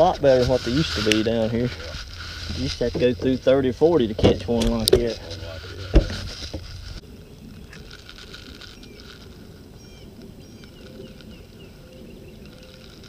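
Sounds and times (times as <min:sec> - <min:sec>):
small bird chirping: 0:07.1 - 0:13.0.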